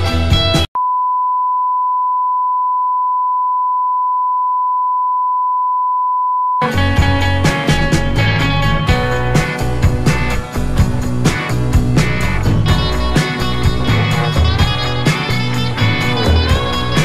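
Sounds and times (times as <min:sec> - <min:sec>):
background music: 0:06.6 - 0:17.0.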